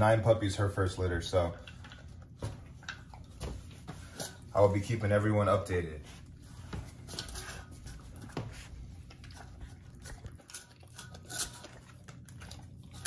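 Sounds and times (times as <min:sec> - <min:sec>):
dog chewing food: 0:01.2 - 0:04.5, 0:06.1 - 0:13.0.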